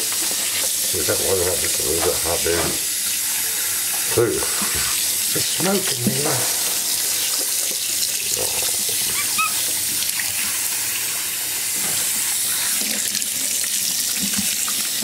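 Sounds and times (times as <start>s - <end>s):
tap running into metal sink: 1.4s - 2.9s, 11.7s - 12.2s.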